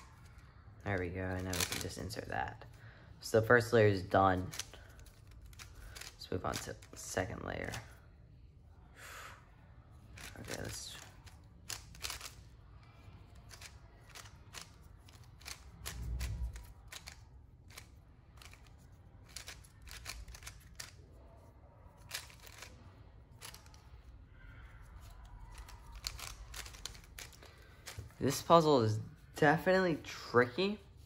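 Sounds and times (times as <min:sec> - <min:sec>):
puzzle cube clicking: 0:01.5 - 0:02.0, 0:04.4 - 0:06.7, 0:10.2 - 0:12.4, 0:13.4 - 0:21.0, 0:22.0 - 0:22.8, 0:25.0 - 0:28.1.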